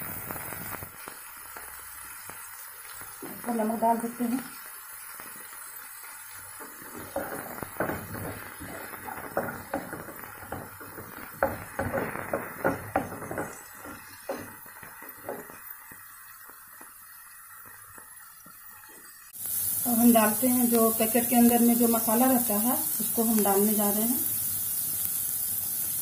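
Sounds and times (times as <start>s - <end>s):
wooden spatula scraping a frying pan: 6.5s - 15.6s.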